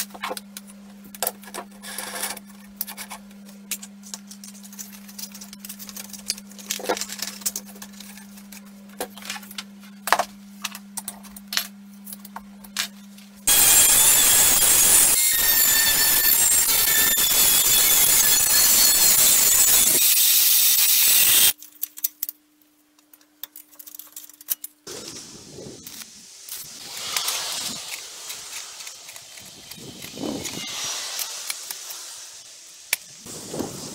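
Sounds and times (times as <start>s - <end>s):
angle grinder cutting metal sheet: 13.5s - 21.6s, 24.9s - 33.1s
metal parts clicking and tapping: 21.6s - 22.4s, 23.0s - 24.8s.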